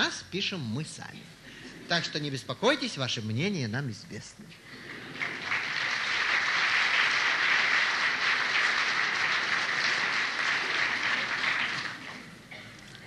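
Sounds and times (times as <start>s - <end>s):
audience applauding: 4.8s - 12.4s.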